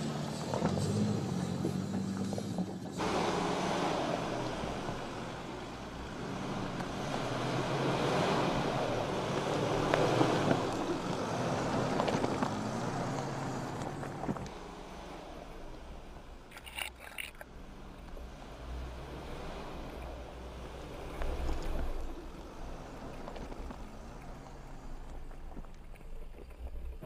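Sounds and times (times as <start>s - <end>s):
vehicle engine running low: 0.0s - 27.0s
tyres crunching over stones: 16.5s - 17.5s.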